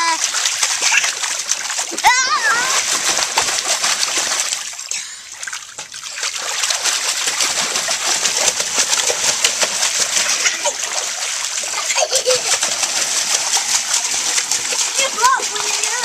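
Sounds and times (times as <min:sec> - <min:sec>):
water splashing in paddling pool: 0:00.0 - 0:16.0.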